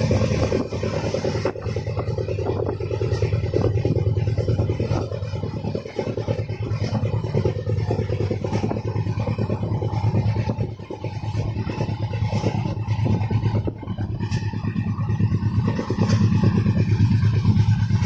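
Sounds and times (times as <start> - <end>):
fast dense rattling: 0.0 - 18.0
train wheels rumbling on rails: 0.0 - 18.0.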